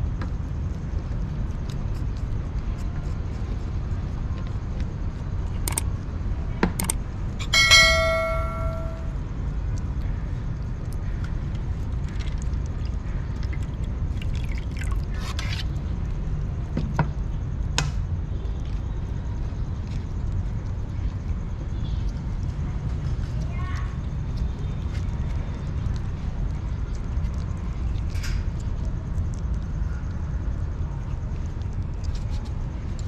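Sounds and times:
ringing tone: 0:07.5 - 0:09.2.

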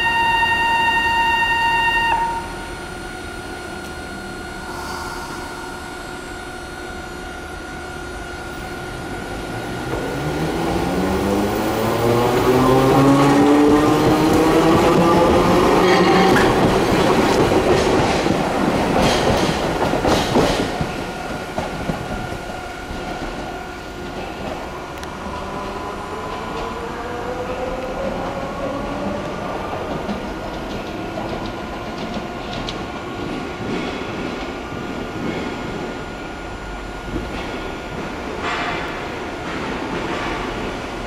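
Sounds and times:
tram traction motors whining: 0:00.0 - 0:41.0
tram wheels clacking over rail joints: 0:09.8 - 0:24.7, 0:37.0 - 0:41.0.

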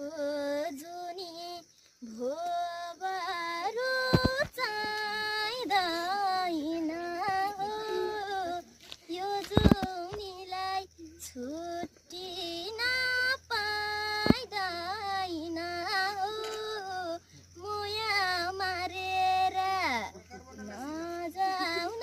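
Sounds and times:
girl singing: 0:00.0 - 0:20.2, 0:20.8 - 0:22.0.

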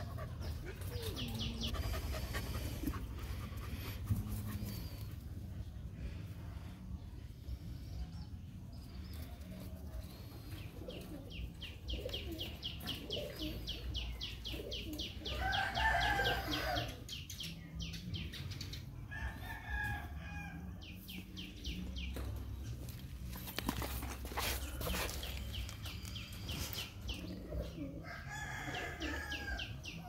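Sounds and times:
rooster crowing: 0:15.4 - 0:17.0.

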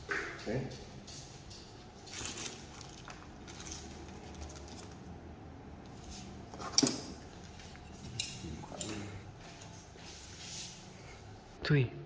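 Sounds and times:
small metal parts clinking: 0:01.0 - 0:05.0.

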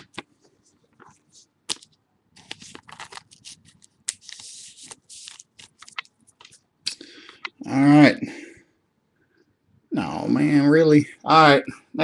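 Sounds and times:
plastic sleeve rustling: 0:00.0 - 0:06.7.

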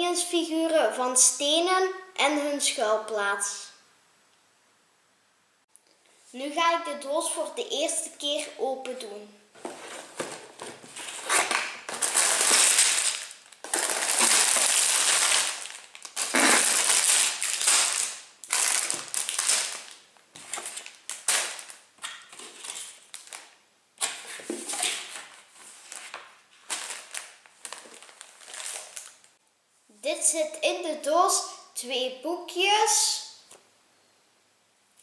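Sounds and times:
cardboard box being opened: 0:09.6 - 0:12.5
plastic bags crinkling: 0:09.6 - 0:29.4.

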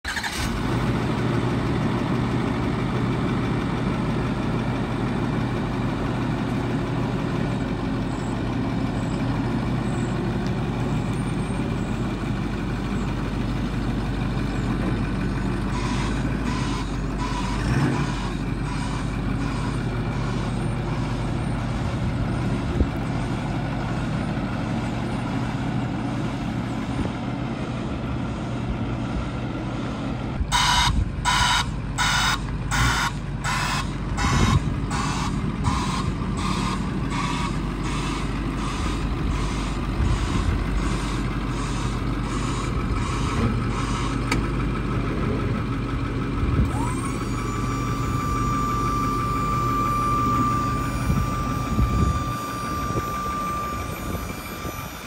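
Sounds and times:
diesel truck engine idling: 0:00.0 - 0:55.0.

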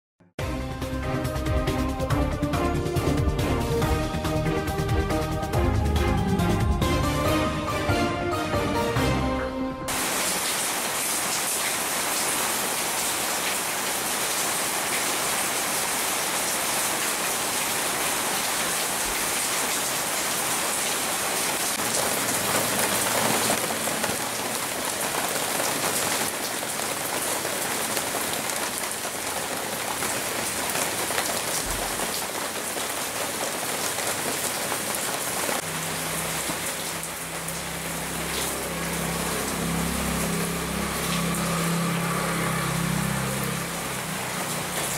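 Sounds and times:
rain falling on leaves: 0:09.9 - 0:44.9
drops dripping from foliage: 0:35.6 - 0:44.9.

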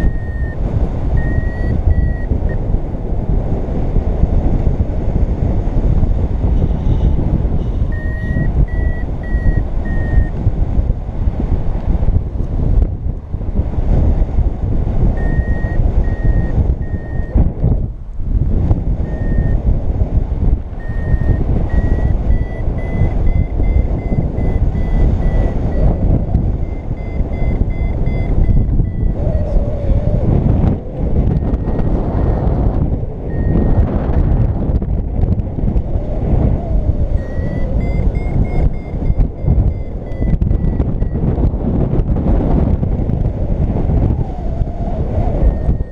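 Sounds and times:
variometer short high beeps: 0:00.0 - 0:02.6, 0:07.7 - 0:10.4, 0:15.2 - 0:17.4, 0:19.0 - 0:19.6, 0:20.8 - 0:29.6, 0:31.3 - 0:32.6, 0:33.3 - 0:33.9, 0:37.1 - 0:41.3, 0:45.4 - 0:45.9
wind noise on microphone: 0:00.0 - 0:45.9.

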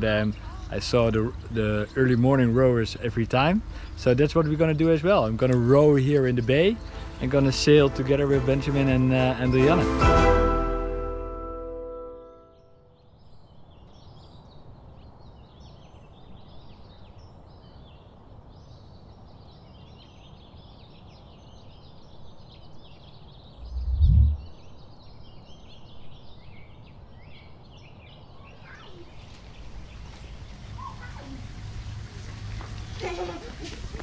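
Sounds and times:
small birds chirping: 0:00.0 - 0:07.4, 0:12.5 - 0:33.4
low thud: 0:23.6 - 0:24.5
low steady rumble: 0:23.6 - 0:24.6.

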